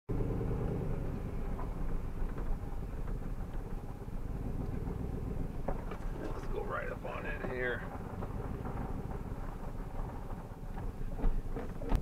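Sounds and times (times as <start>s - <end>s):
vehicle engine rumbling: 0.1s - 12.0s
light rattles: 1.4s - 12.0s.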